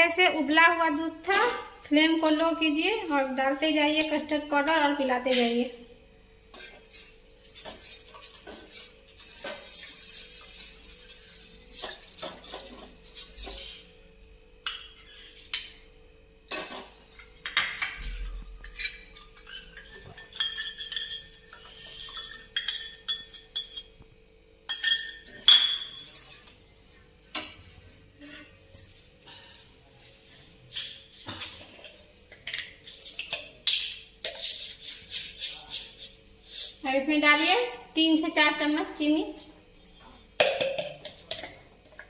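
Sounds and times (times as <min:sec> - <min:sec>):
ladle scraping saucepan: 0:06.5 - 0:13.8, 0:17.8 - 0:23.8, 0:25.2 - 0:28.6.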